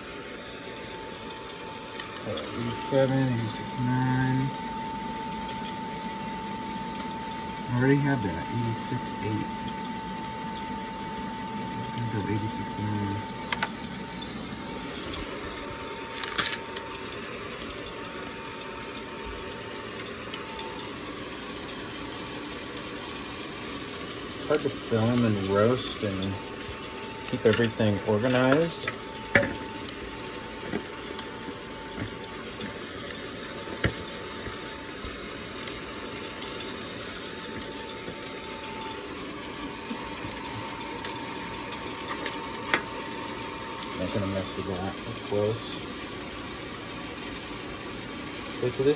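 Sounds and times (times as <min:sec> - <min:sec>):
coffee roaster air rush: 0:00.0 - 0:48.9
faint steady whine: 0:00.0 - 0:48.9.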